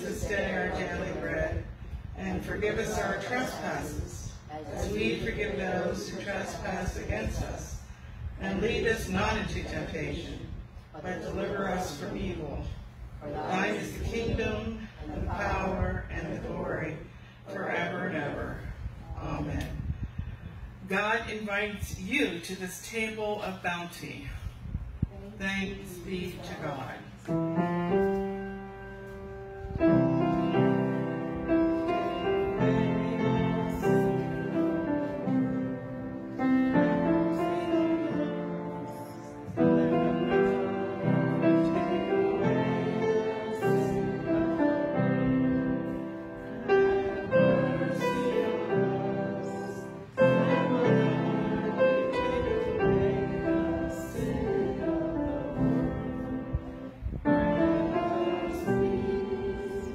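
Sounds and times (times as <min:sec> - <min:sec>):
slow hymn on piano: 0:27.2 - 0:59.9.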